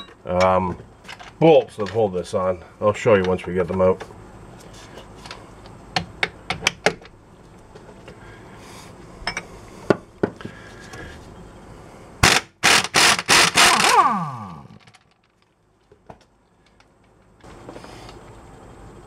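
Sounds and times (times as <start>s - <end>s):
air impact wrench hammering: 12.2s - 14.7s
motor winding down whine: 12.6s - 14.9s.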